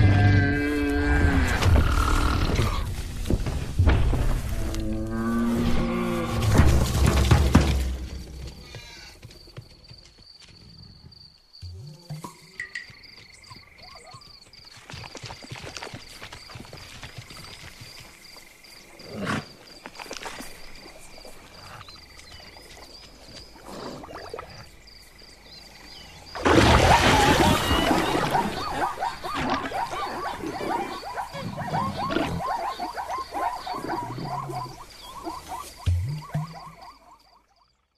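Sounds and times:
frogs and insects chorus: 0:00.0 - 0:07.2, 0:08.6 - 0:37.9
short repeated animal cries: 0:08.6 - 0:09.2
loud splash and roar: 0:26.4 - 0:28.8.

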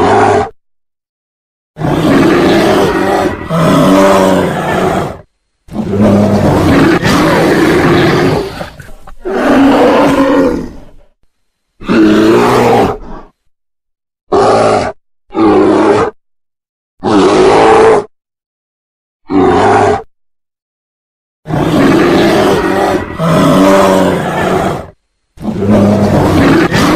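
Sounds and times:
bear roaring and growling: 0:00.0 - 0:00.6, 0:01.8 - 0:11.2, 0:11.8 - 0:13.5, 0:14.3 - 0:16.2, 0:17.0 - 0:18.1, 0:19.2 - 0:20.1, 0:21.4 - 0:26.9.

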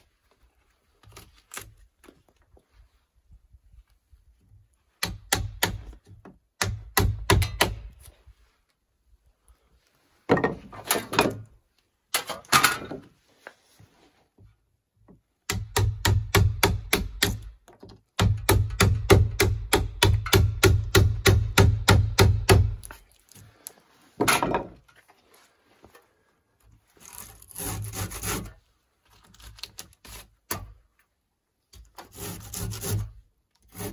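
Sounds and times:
hammer striking wood chisel: 0:05.0 - 0:07.9, 0:15.5 - 0:17.5, 0:18.2 - 0:22.9.

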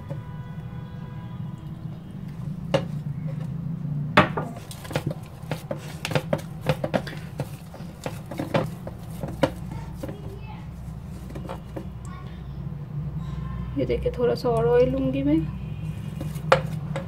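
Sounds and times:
hands kneading dough: 0:04.4 - 0:12.0, 0:15.9 - 0:17.0.

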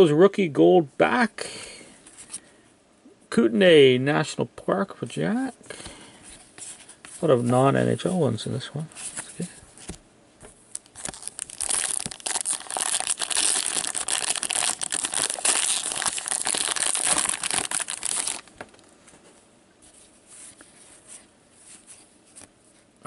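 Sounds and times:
foil wrapper tearing and crinkling: 0:10.7 - 0:18.6.

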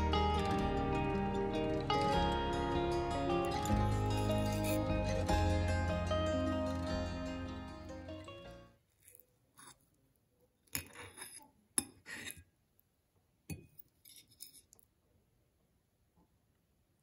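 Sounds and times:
fork scraping a plate: 0:10.8 - 0:12.5, 0:14.0 - 0:14.8.

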